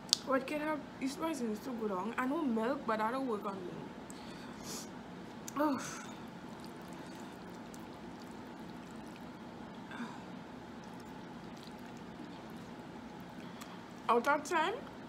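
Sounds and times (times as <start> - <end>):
faint hum and hiss: 0.0 - 15.0.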